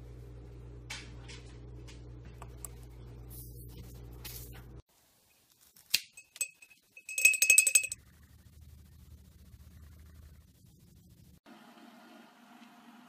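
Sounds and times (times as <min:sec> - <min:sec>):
low steady hum: 0:00.0 - 0:04.8
glass clinks: 0:06.2 - 0:08.0.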